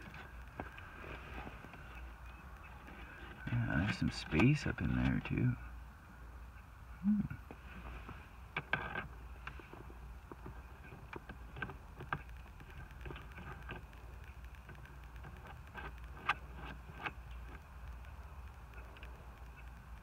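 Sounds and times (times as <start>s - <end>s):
low steady rumble: 0.0s - 20.0s.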